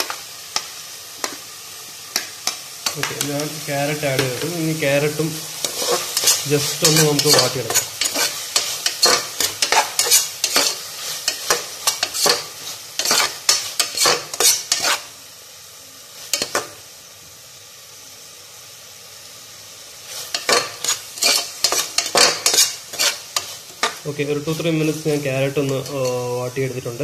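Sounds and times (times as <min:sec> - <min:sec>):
vegetables sizzling in oil: 0:00.0 - 0:27.0
metal spatula scraping pot: 0:05.6 - 0:15.1, 0:20.3 - 0:24.0, 0:25.6 - 0:26.3.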